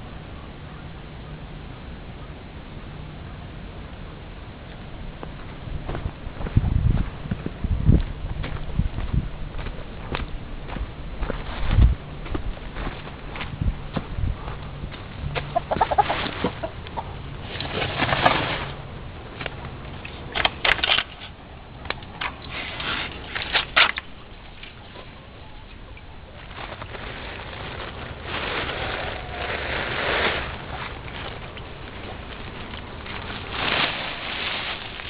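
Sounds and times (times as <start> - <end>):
hens clucking and cackling: 15.3 - 17.4.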